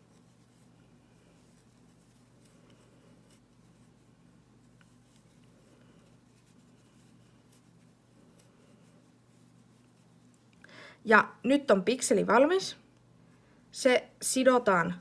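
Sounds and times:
crochet hook rustles and clicks: 0:01.4 - 0:10.4.

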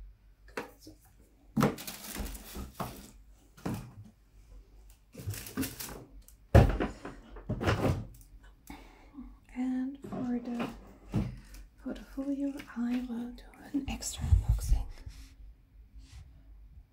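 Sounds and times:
cardboard boxes being moved: 0:05.1 - 0:08.2.

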